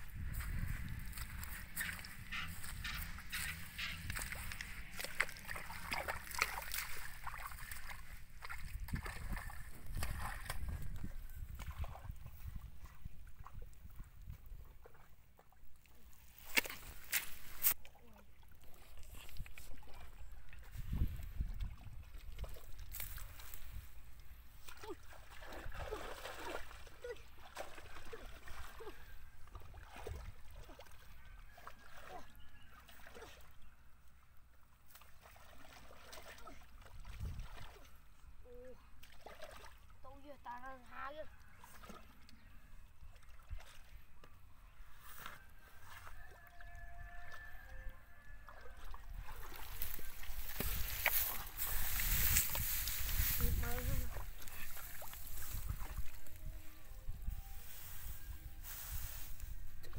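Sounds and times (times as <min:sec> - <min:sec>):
footsteps crackling dry straw: 0:00.0 - 0:08.1, 0:16.2 - 0:17.8, 0:22.9 - 0:24.0, 0:44.9 - 0:46.2, 0:49.2 - 0:59.8
footsteps squelching in mud: 0:00.0 - 0:12.1, 0:15.8 - 0:17.8, 0:44.9 - 0:46.4, 0:48.5 - 0:56.5.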